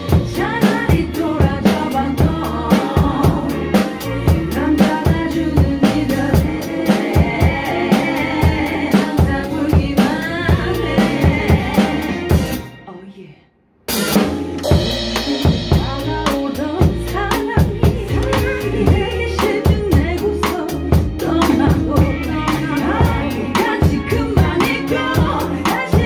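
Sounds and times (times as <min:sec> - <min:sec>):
drum kit playing: 0:00.0 - 0:12.8, 0:13.8 - 0:26.0
pop song backing track: 0:00.0 - 0:13.2, 0:13.9 - 0:26.0
person singing: 0:14.7 - 0:26.0.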